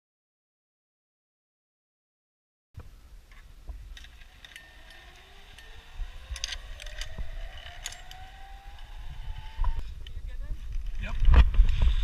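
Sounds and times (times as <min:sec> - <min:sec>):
metal clinks: 0:03.9 - 0:08.9
zip-line trolley whine on cable: 0:03.9 - 0:10.0.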